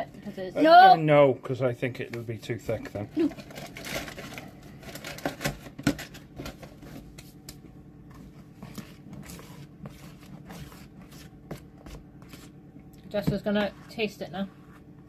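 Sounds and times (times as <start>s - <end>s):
faint steady hum: 0.0s - 15.0s
spoon scraping icing in bowl: 8.4s - 12.6s.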